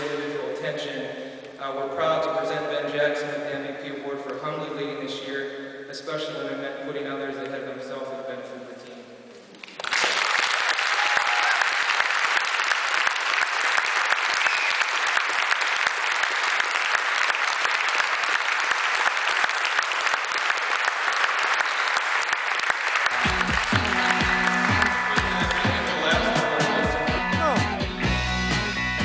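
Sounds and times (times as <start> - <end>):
audience applause: 9.6 - 28.8.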